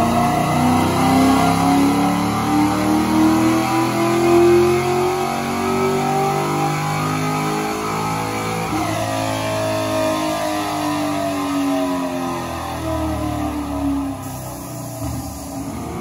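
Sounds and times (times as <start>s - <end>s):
car engine on a dyno: 0.0s - 16.0s.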